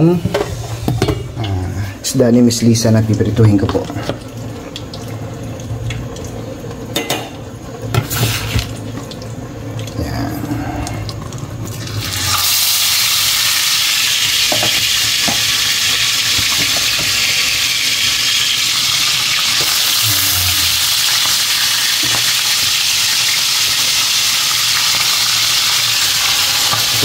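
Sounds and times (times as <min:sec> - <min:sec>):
fish sizzling in hot oil: 0:07.8 - 0:09.5, 0:11.7 - 0:27.0.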